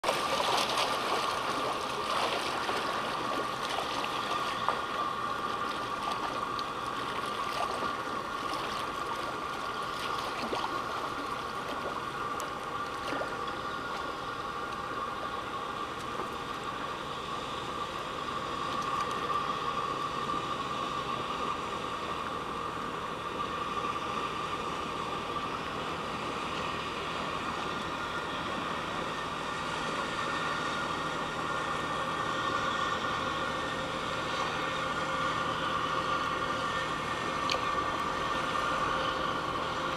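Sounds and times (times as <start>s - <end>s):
water lapping against rocks: 0.0s - 14.2s
high-pitched hum: 0.0s - 39.9s.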